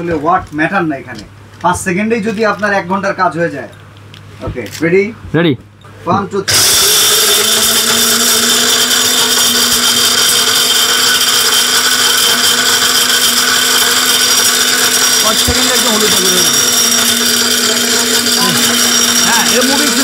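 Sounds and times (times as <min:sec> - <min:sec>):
electric grinder whining: 0:06.5 - 0:20.0.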